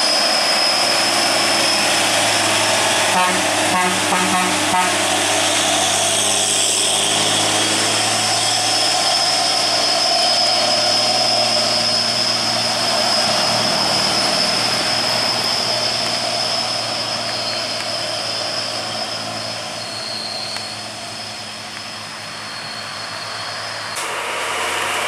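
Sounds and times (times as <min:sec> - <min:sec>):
steady high whine: 0:00.0 - 0:25.0
truck diesel engine climbing: 0:00.0 - 0:25.0.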